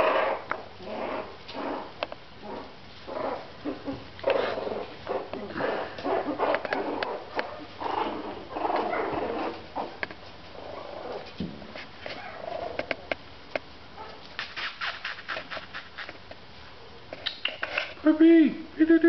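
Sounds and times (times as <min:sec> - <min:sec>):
puppies growling and whining: 0:00.0 - 0:11.3, 0:12.1 - 0:12.9.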